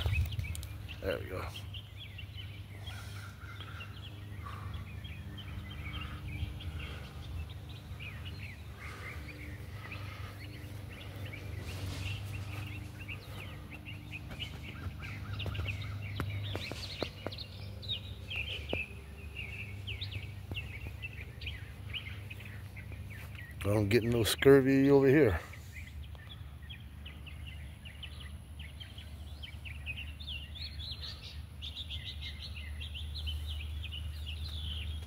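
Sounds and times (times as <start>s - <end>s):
sharp clicks: 0.0s - 0.8s
steady low rumble: 0.0s - 23.7s
small birds chirping: 0.0s - 35.0s
leaves and twigs rustling: 9.7s - 17.2s.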